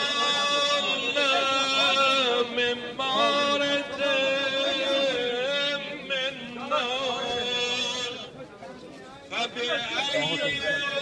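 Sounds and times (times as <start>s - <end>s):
man chanting: 0.0s - 8.2s, 9.4s - 11.0s.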